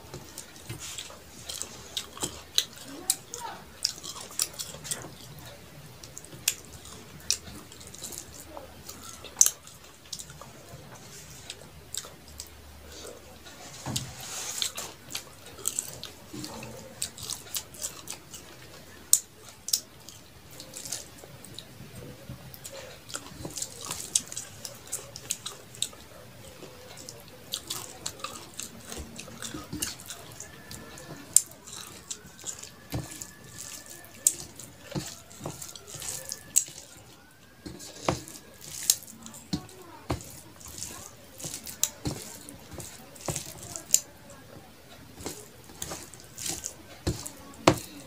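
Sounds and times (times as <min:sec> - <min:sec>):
wet chewing and lip smacks: 0:00.0 - 0:21.8, 0:22.5 - 0:48.0
rice squishing on steel plate: 0:00.0 - 0:48.0.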